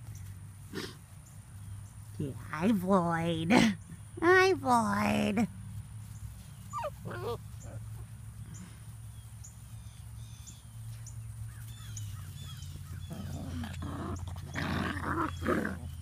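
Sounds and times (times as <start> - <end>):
puppies scuffling in grass: 0.0 - 16.0
bird chirping: 6.0 - 16.0.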